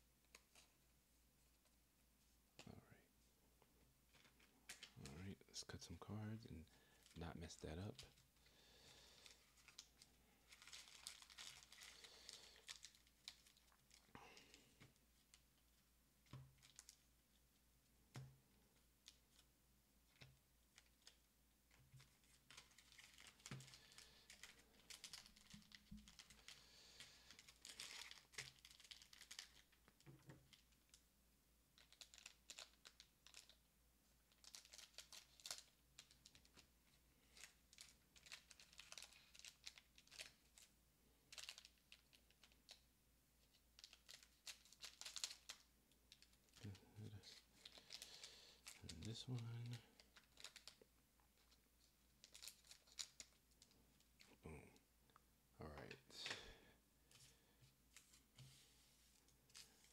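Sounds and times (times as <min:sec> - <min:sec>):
plastic wrappers rustling: 0:04.1 - 0:17.0, 0:20.1 - 0:31.0, 0:31.8 - 0:33.6, 0:34.3 - 0:40.7, 0:41.3 - 0:42.8, 0:43.4 - 0:54.3, 0:57.1 - 0:59.9.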